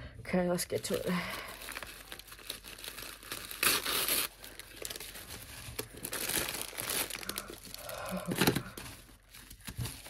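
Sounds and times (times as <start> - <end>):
paper and plastic crinkling: 0.7 - 10.0
tissue paper ripping: 1.5 - 8.0.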